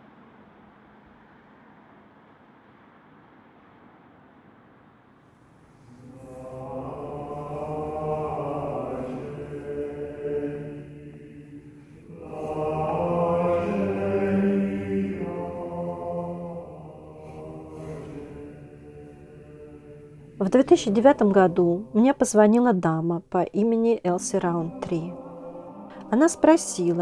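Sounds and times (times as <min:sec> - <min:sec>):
choir singing a cappella: 0:05.8 - 0:22.6, 0:24.1 - 0:27.0.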